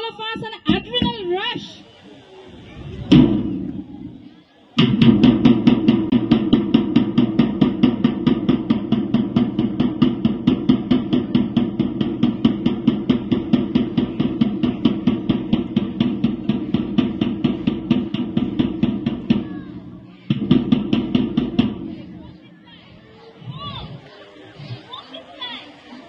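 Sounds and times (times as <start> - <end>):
fast marching drum beat: 4.8 - 22.5.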